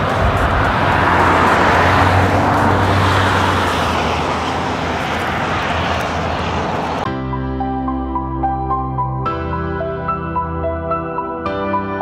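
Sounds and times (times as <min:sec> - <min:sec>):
low engine hum: 0:00.0 - 0:07.1
tyre roar on highway: 0:00.0 - 0:07.1.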